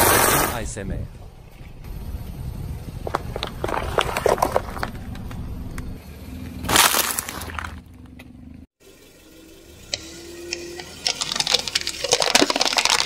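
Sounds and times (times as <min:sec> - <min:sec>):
low car rumble: 0:00.6 - 0:11.8
paper cups crunching under tyre: 0:03.0 - 0:05.4, 0:06.7 - 0:07.9, 0:10.8 - 0:13.0
eggs crunching and splatting: 0:10.0 - 0:13.0.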